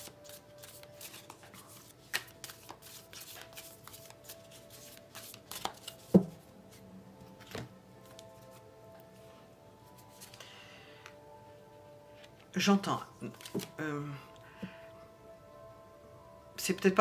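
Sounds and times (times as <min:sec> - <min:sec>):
cards shuffling: 0:00.0 - 0:06.4, 0:10.0 - 0:10.4, 0:13.3 - 0:13.8
faint background music: 0:00.0 - 0:17.0.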